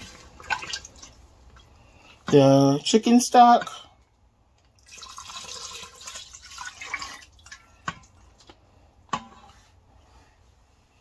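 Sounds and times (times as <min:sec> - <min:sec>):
liquid pouring into a pot: 0:04.8 - 0:08.5.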